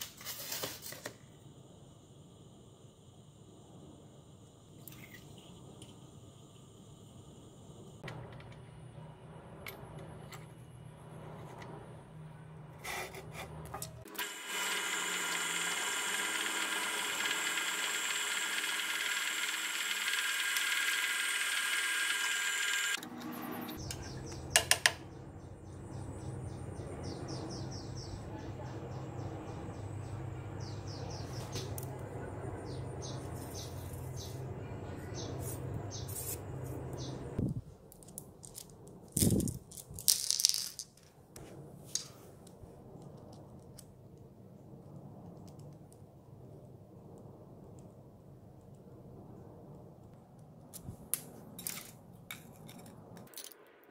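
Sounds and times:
low machine hum: 0:01.4 - 0:37.6
drill press drilling metal: 0:14.1 - 0:23.0.

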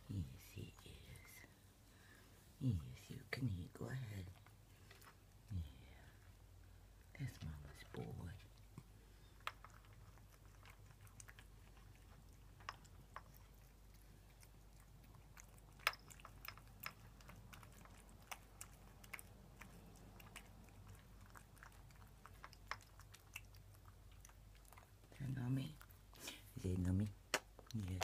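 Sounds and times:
cat chewing wet food: 0:03.9 - 0:28.0.

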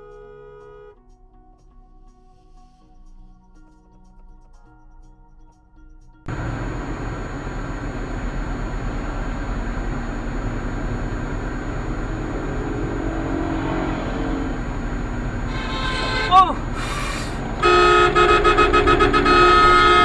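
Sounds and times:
car engine and road noise: 0:00.0 - 0:00.9, 0:06.3 - 0:20.0.

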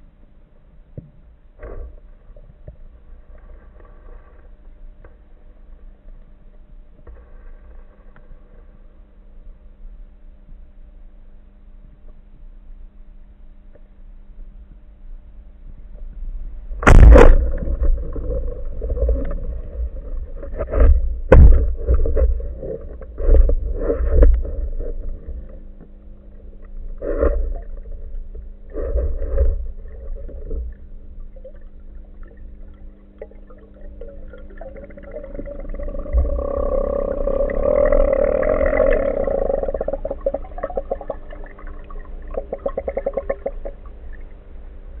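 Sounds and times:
faint steady hum: 0:00.0 - 0:45.0
rushing water and bubbles: 0:16.6 - 0:45.0
sharp crack: 0:16.8 - 0:18.3.

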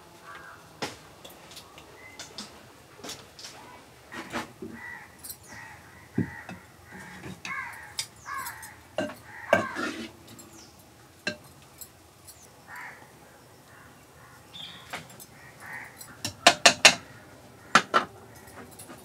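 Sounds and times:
bird calling: 0:00.0 - 0:02.7, 0:03.4 - 0:11.4, 0:12.2 - 0:19.0
ladle knocking against clay pot: 0:09.0 - 0:10.1, 0:16.2 - 0:17.0.

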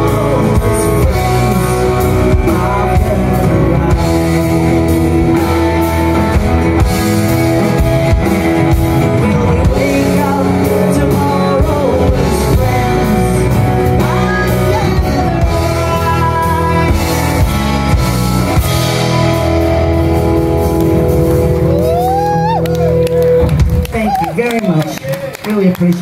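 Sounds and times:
drums: 0:00.0 - 0:26.0
electric and acoustic guitars: 0:00.0 - 0:26.0
woman singing: 0:09.1 - 0:17.5.

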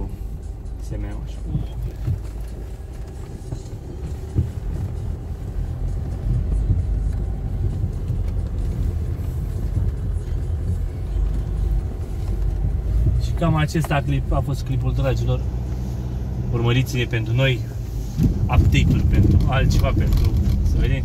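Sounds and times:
low rumble of engine and tyres: 0:00.0 - 0:21.0.

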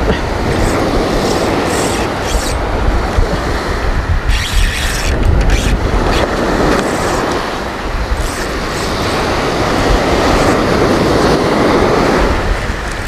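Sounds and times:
waves on pebble beach: 0:00.0 - 0:04.3, 0:05.8 - 0:13.0
wind buffeting microphone: 0:00.0 - 0:13.0
rattling crackles: 0:04.3 - 0:07.4.

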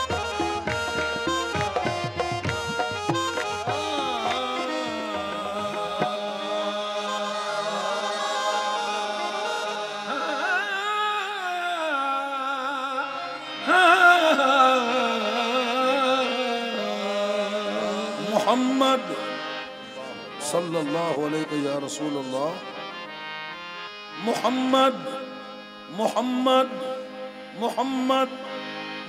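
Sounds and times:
harmonium drone: 0:00.0 - 0:29.0
man singing melismatic line: 0:03.2 - 0:22.9.

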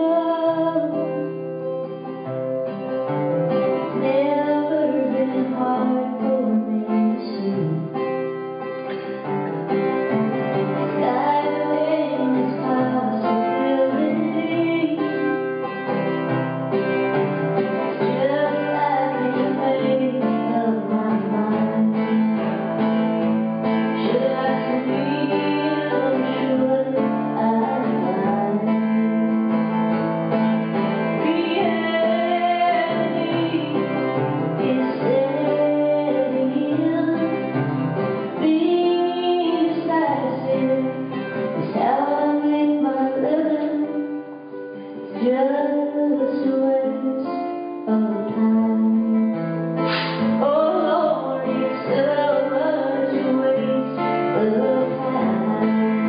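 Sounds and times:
woman singing: 0:00.0 - 0:02.2, 0:03.5 - 0:22.9, 0:23.6 - 0:29.6, 0:30.8 - 0:49.6, 0:50.2 - 0:56.0
acoustic guitar: 0:00.0 - 0:56.0.

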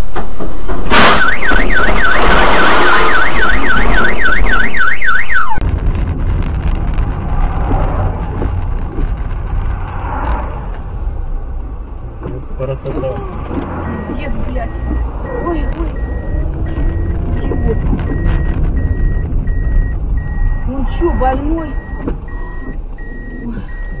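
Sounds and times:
sudden loud noise: 0:00.0 - 0:12.6
car alarm warbling: 0:01.0 - 0:05.6, 0:13.7 - 0:24.0
vehicle driving rumble: 0:05.5 - 0:24.0.

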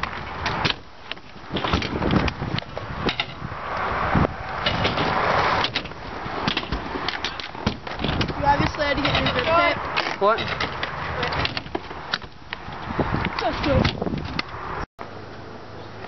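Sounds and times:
scooter deck clacking down: 0:00.0 - 0:03.4, 0:04.5 - 0:12.4
scooter wheels rolling on concrete: 0:00.0 - 0:15.4.

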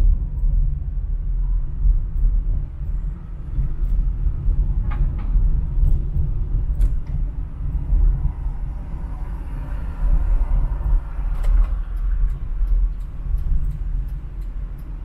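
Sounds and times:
car road rumble: 0:00.0 - 0:15.0.

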